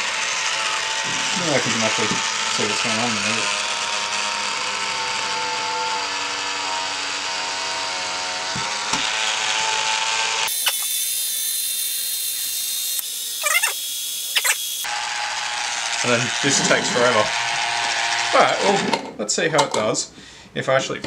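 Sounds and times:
jar opener motor whirring: 0.0s - 18.9s
clicks and squeaks: 13.4s - 13.8s, 14.4s - 14.6s.

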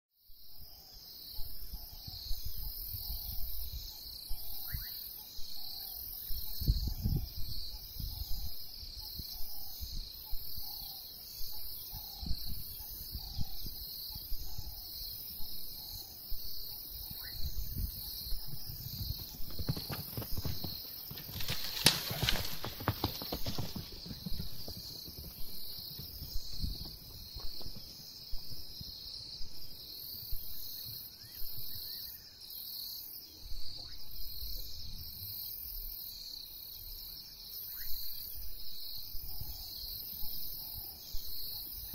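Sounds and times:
wind rumbles: 17.1s - 29.0s
galloping hoofbeats on dirt: 17.9s - 29.0s
insects shrilling: 19.1s - 24.2s.

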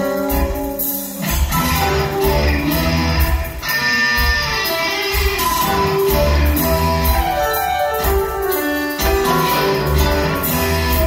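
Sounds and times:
live rock band playing: 0.0s - 11.0s.

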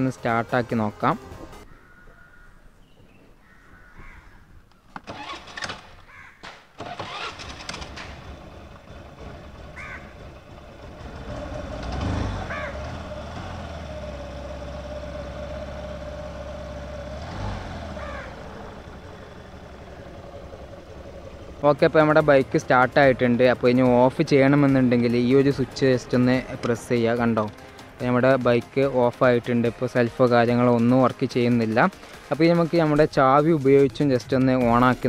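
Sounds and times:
scooter engine revving: 5.0s - 6.1s, 6.8s - 27.9s
scooter engine starting and idling: 5.0s - 32.3s.

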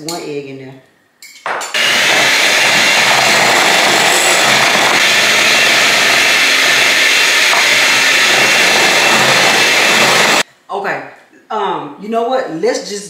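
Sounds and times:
electric mixer running: 1.8s - 10.4s.

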